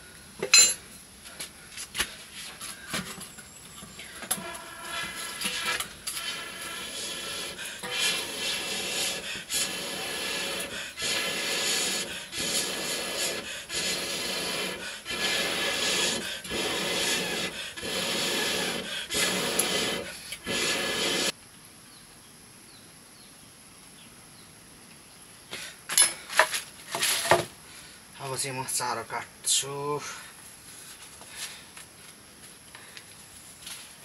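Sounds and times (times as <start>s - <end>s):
rhythmic rasping rubbing strokes: 4.3s - 21.3s.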